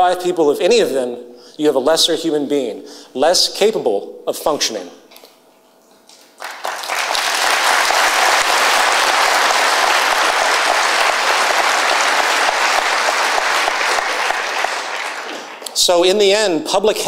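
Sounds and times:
audience applause: 6.3 - 15.8.

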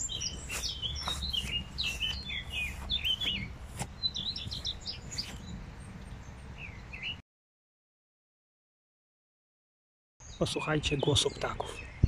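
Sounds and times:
songbirds chirping and warbling: 0.0 - 7.2, 10.2 - 12.0.

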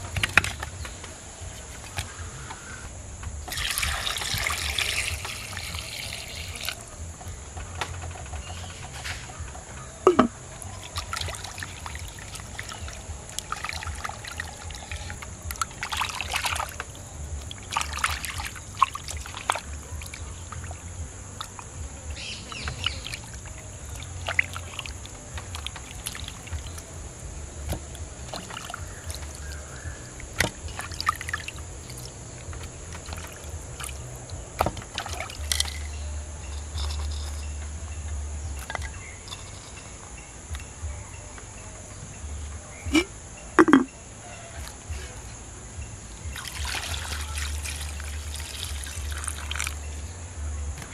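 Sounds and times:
clicks and knocks on clay pots: 0.0 - 2.2, 3.2 - 37.8
water sloshing and splashing: 0.0 - 37.7, 38.4 - 39.8, 46.0 - 50.9.

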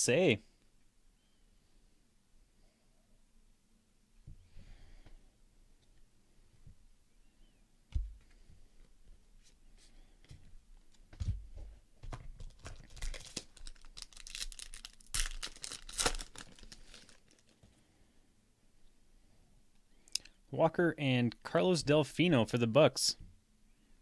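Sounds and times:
foil wrapper crinkling and tearing: 12.4 - 17.6.

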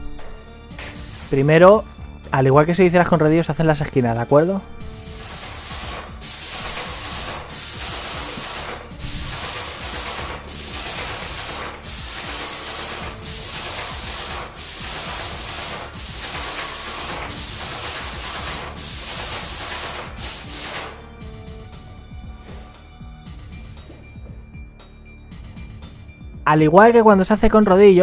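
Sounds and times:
paint spray gun hissing: 0.8 - 1.8, 4.9 - 21.0.

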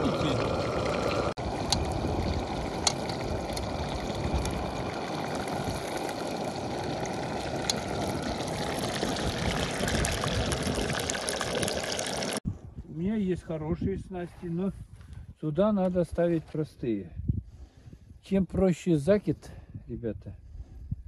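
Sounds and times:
firewood crackling: 0.3 - 12.4.

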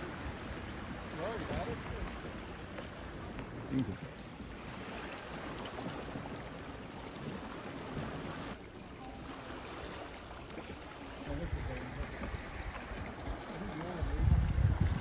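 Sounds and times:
sea water lapping on rocks: 0.0 - 15.0
wind buffeting microphone: 11.2 - 15.0.

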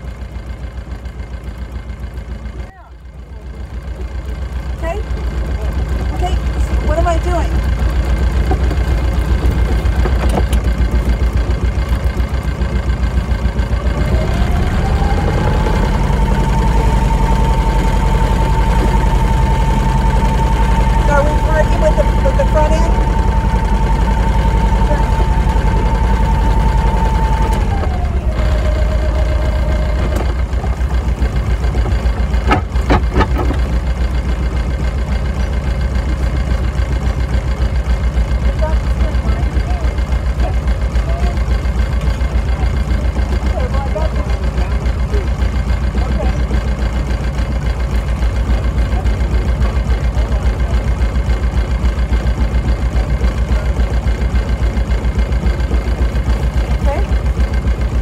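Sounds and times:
boat engine idling: 0.0 - 58.0
faint rising whine: 14.0 - 30.4.

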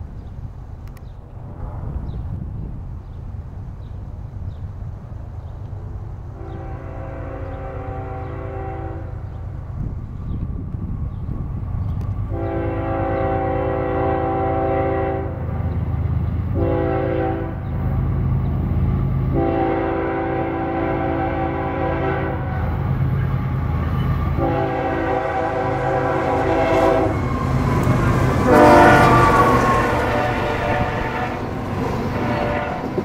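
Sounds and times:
locomotive air horn blasts: 6.4 - 9.3, 12.3 - 15.6, 16.5 - 17.7, 19.3 - 33.0.

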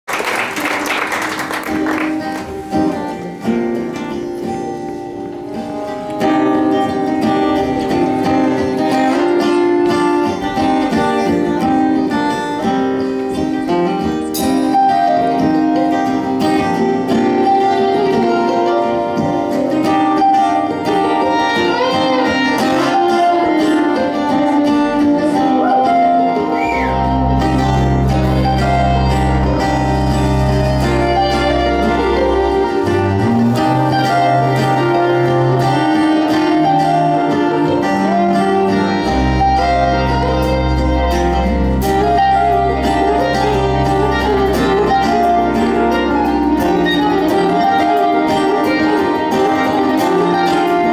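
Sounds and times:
acoustic string band playing: 0.1 - 50.9.

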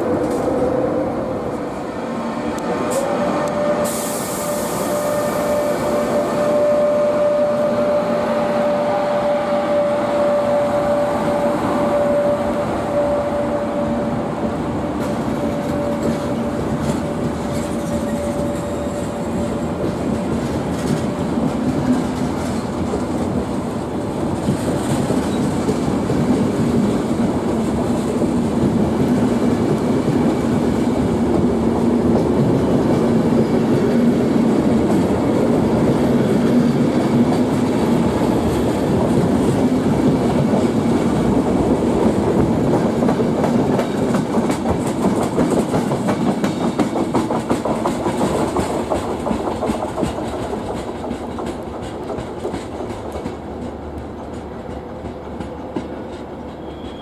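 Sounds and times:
electric locomotive whine: 0.0 - 57.0
passenger coaches rumbling: 0.0 - 57.0
wheels clicking over rail joints: 42.4 - 56.8.

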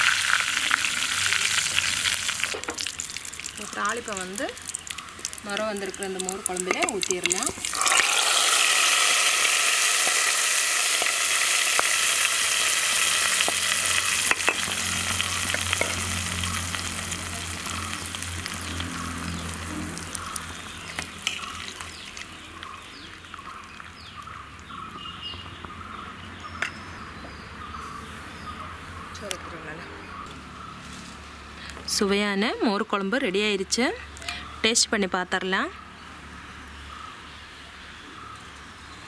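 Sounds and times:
hot oil sizzling: 0.0 - 24.8.

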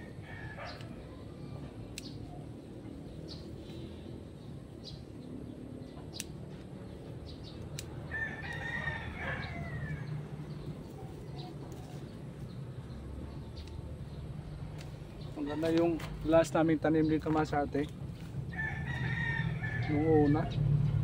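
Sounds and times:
rooster crowing: 0.0 - 0.9, 8.1 - 10.3, 18.5 - 20.4.

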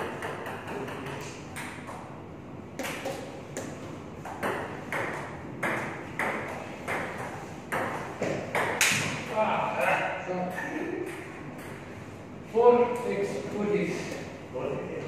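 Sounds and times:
table tennis ball hitting paddles: 0.0 - 2.1, 2.8 - 9.3.

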